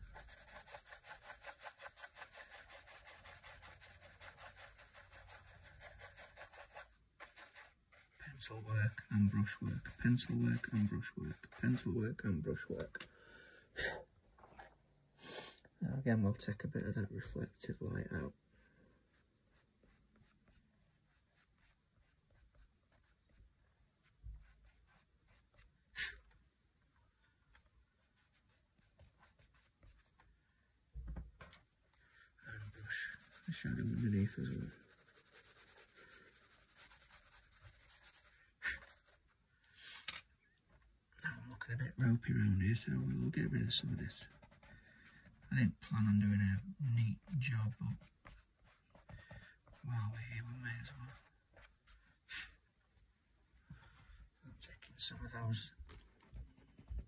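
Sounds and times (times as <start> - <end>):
paintbrush scrubbing on paper: 0.0 - 12.7, 17.6 - 26.2, 27.8 - 30.3, 32.2 - 39.4, 41.3 - 52.6.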